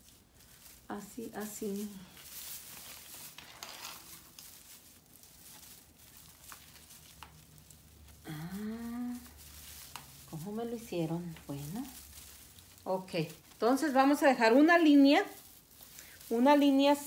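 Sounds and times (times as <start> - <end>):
artificial tree branches rustling: 0.0 - 17.0
woman humming: 8.2 - 9.4.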